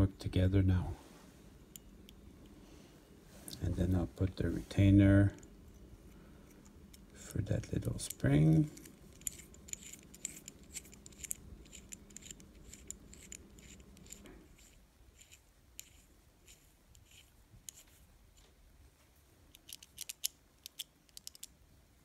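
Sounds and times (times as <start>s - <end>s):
faint low hum: 0.0s - 22.0s
metallic clicks of small parts: 6.5s - 17.9s, 19.5s - 21.6s.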